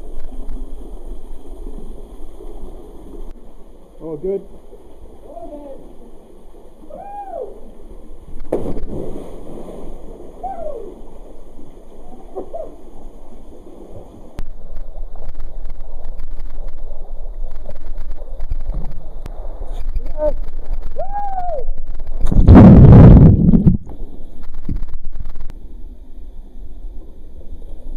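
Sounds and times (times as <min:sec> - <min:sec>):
water sloshing from swimming: 0:00.0 - 0:22.5
person splashing into water: 0:08.5 - 0:10.9.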